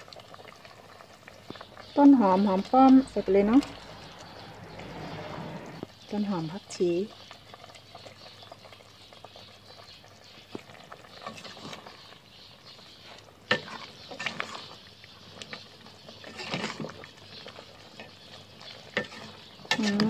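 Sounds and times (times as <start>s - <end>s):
curry simmering in a pot: 0.0s - 20.0s
metal ladle scraping a pot: 13.5s - 14.8s, 16.2s - 17.0s, 18.9s - 20.0s.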